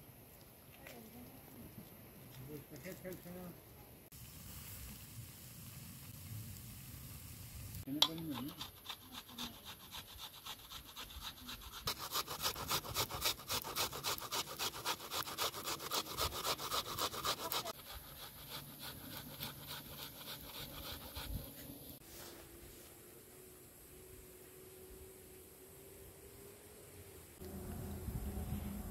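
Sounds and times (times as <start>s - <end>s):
onion grated on metal grater: 8.0s - 21.4s.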